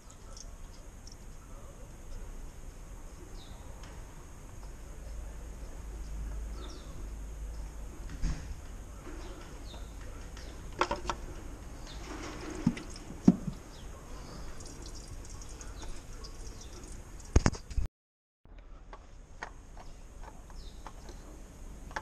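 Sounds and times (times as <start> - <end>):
steady low hum: 0.0 - 17.7
sharp clicks and knocks: 9.8 - 11.2.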